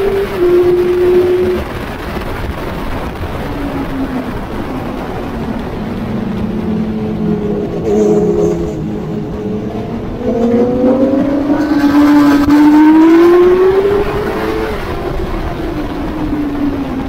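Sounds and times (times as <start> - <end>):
wind rush on microphone: 0.0 - 17.0
motorcycle engine at high revs: 6.4 - 15.6.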